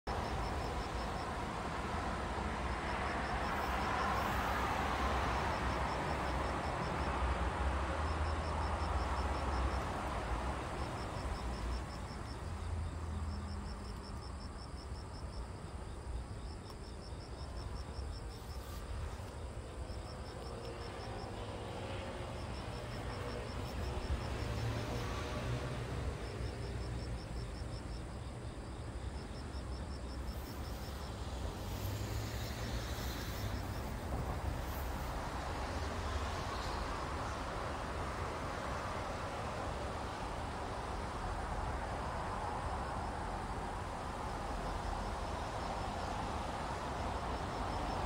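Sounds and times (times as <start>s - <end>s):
insect chirping trills: 0.1s - 48.0s
hiss: 3.6s - 5.2s, 30.2s - 37.3s.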